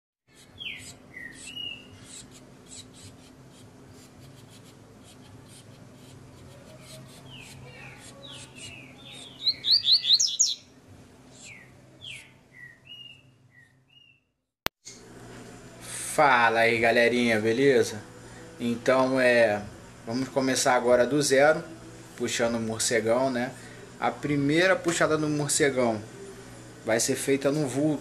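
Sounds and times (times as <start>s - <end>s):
songbirds chirping: 0.3s - 2.2s, 6.9s - 14.3s
steady low hum: 14.9s - 28.0s.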